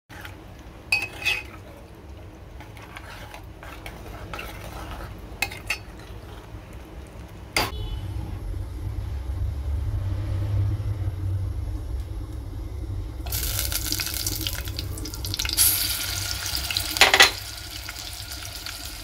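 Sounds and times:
low steady hum: 0.1 - 19.0
spoon clinking against pot: 0.9 - 1.6, 17.0 - 17.4
metal spoon stirring curry in pot: 1.0 - 1.7, 2.6 - 6.4.

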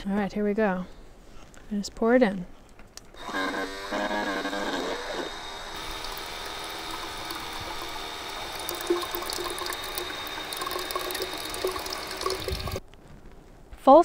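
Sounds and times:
small water pump running: 3.2 - 12.8
water pouring into glass tube: 5.8 - 12.8.

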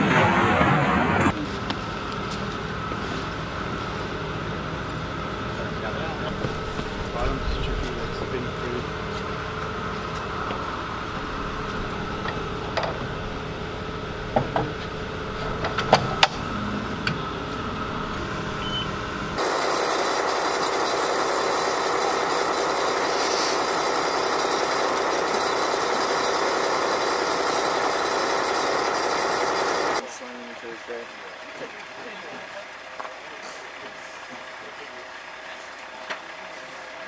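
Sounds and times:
loud rushing noise: 0.0 - 1.4, 6.4 - 9.5
mechanical hum: 0.0 - 34.9.

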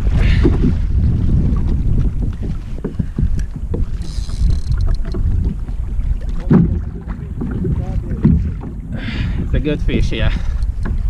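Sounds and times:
water splashing against kayak: 0.0 - 11.0
wind buffeting microphone: 0.0 - 11.0.

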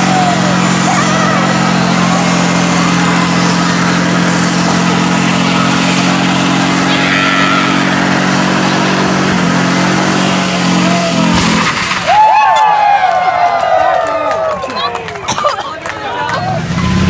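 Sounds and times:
car engine at high revs: 0.0 - 12.1.

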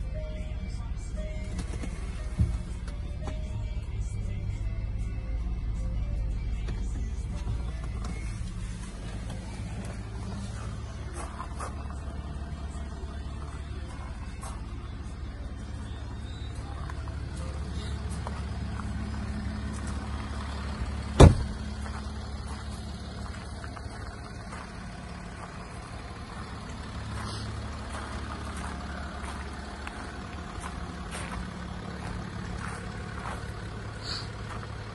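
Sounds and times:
diesel engine idling: 0.0 - 34.9
car door shutting: 21.1 - 21.6.

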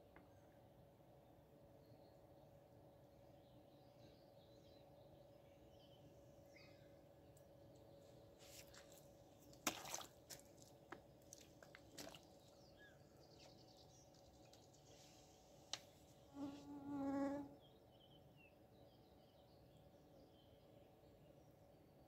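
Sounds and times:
flying insect buzzing: 16.3 - 17.5.

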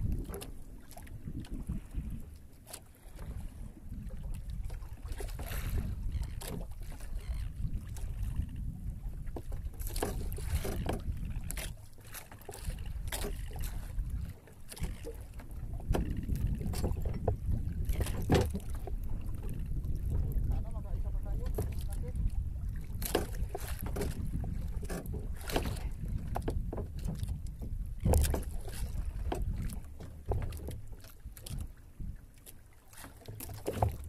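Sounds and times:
wind rumbling on microphone: 0.0 - 2.4, 3.0 - 11.9, 12.6 - 32.3
knocks and clicks from boat: 0.0 - 34.0.

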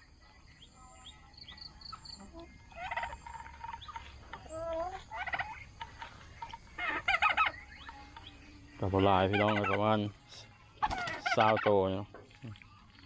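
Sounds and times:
birds chirping and calling: 0.0 - 13.0
turkey gobbling: 1.6 - 10.1, 10.8 - 12.0.

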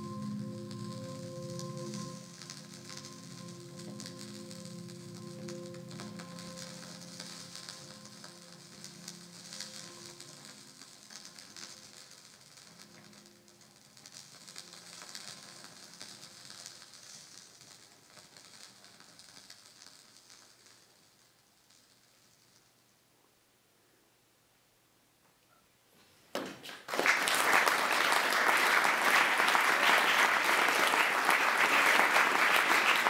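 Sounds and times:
dense electronic crackling texture: 0.0 - 22.9.

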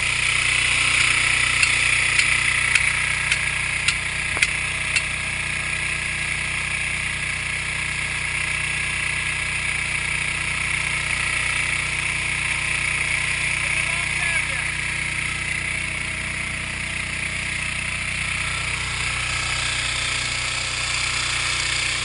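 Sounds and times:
engine running: 0.0 - 22.0
sharp clicks: 0.9 - 5.1.

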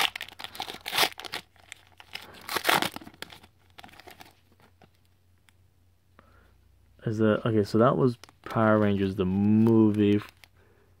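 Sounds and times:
wrapper tearing and crinkling: 0.0 - 4.4.

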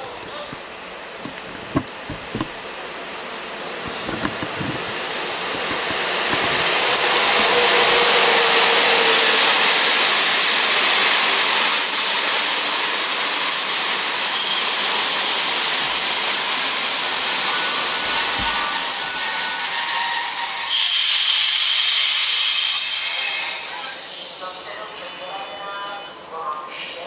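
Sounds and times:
train wheels rushing on rail: 0.0 - 22.8
high wheel squeals: 10.0 - 24.1.

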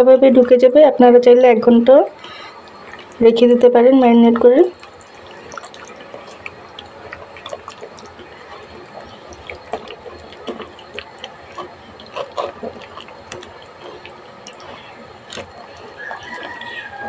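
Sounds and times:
hand squelching raw chicken: 4.8 - 17.0.

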